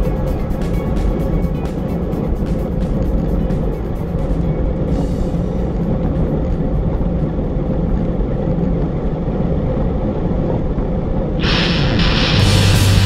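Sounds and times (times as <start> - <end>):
wind noise on microphone: 0.0 - 13.0
loud rock music: 11.4 - 13.0.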